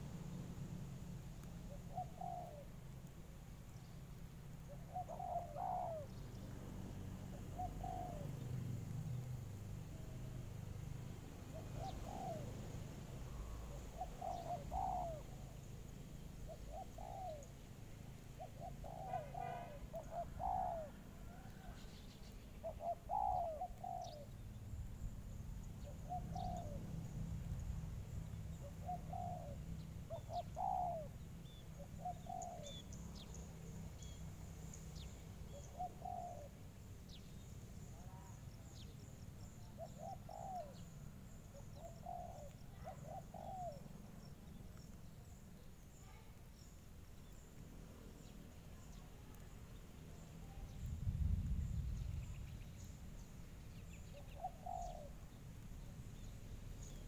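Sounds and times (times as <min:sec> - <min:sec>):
doves cooing: 0:01.7 - 0:02.9, 0:04.7 - 0:06.6, 0:07.3 - 0:08.4, 0:11.5 - 0:12.7, 0:13.3 - 0:15.7, 0:16.5 - 0:17.5, 0:18.4 - 0:21.8, 0:22.6 - 0:24.3, 0:25.8 - 0:27.2, 0:28.5 - 0:33.0, 0:35.5 - 0:36.6, 0:39.7 - 0:44.6, 0:54.0 - 0:55.3.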